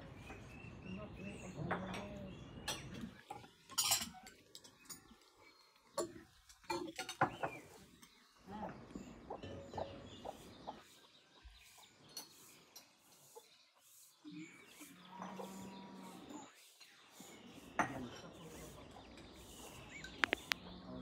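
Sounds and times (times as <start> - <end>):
chickens clucking: 0.2 - 21.0
cutlery and dishes clinking: 1.8 - 5.2, 5.9 - 8.2.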